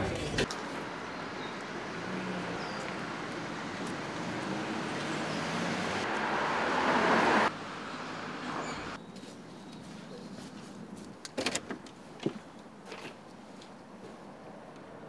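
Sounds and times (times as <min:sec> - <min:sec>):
traffic on wet road: 0:00.0 - 0:09.0.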